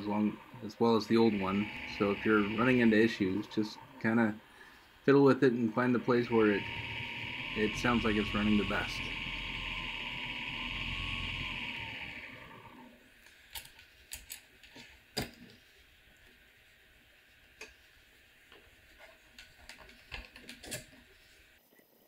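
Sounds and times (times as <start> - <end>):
mini lathe motor running: 0.0 - 13.2.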